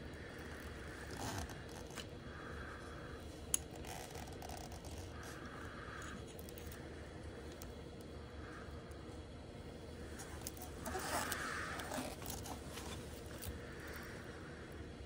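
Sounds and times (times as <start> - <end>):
gloved hands rustling plastic: 10.0 - 14.3.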